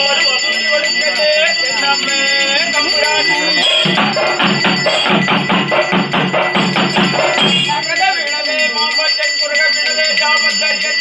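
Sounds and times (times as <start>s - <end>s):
person's voice: 0.0s - 4.5s
ringing bells or cymbals: 0.0s - 11.0s
drums beaten in fast rhythm: 1.7s - 8.8s.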